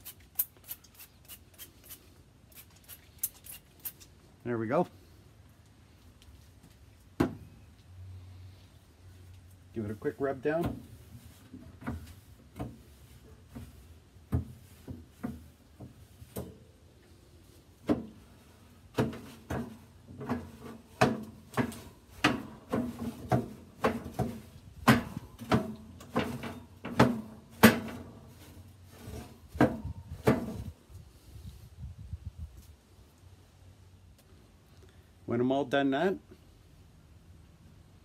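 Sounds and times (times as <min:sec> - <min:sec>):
metal grill grates rattling: 0:18.4 - 0:30.7.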